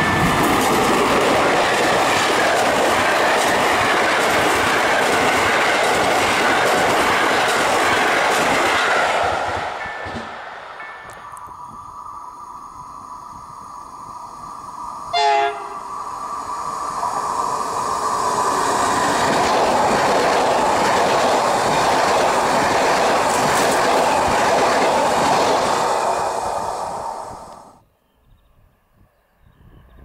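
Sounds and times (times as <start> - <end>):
train wheels rushing on rail: 0.0 - 27.8
train horn blast: 15.1 - 15.8.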